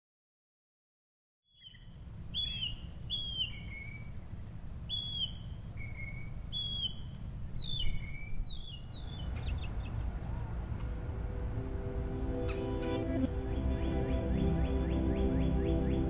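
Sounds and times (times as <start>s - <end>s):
songbird whistled calls: 1.5s - 4.1s, 4.9s - 10.0s, 13.5s - 16.0s
low background rumble: 1.8s - 16.0s.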